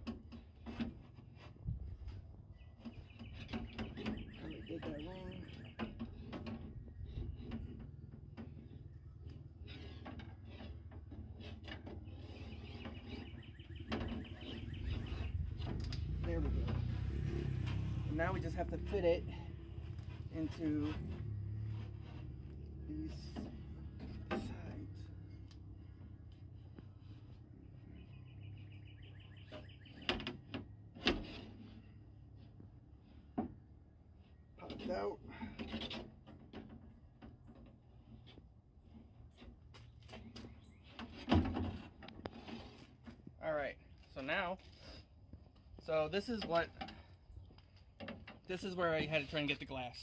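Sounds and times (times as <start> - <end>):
low outdoor rumble: 0.0 - 50.0
birds chirping: 2.4 - 7.6, 12.0 - 16.8, 24.5 - 30.8, 39.3 - 41.2.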